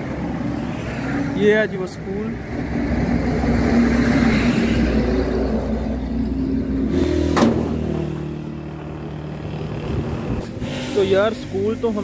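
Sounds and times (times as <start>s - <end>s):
vehicle engine running: 4.8s - 12.0s.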